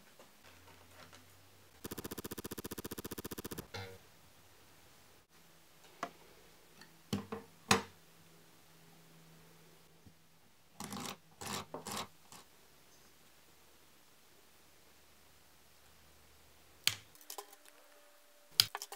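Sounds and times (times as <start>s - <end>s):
skewers rattling and rubbing: 1.8s - 3.7s.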